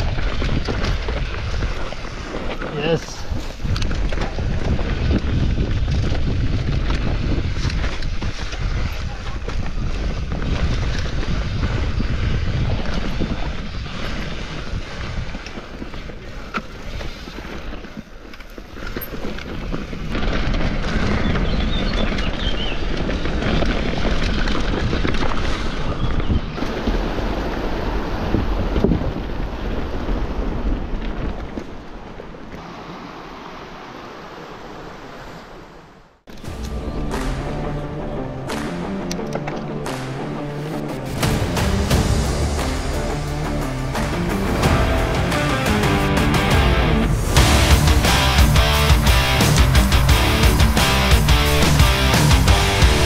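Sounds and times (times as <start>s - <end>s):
bike rolling on rough dirt trail: 0.0s - 35.4s, 43.9s - 53.0s
wind buffeting microphone: 0.0s - 35.8s.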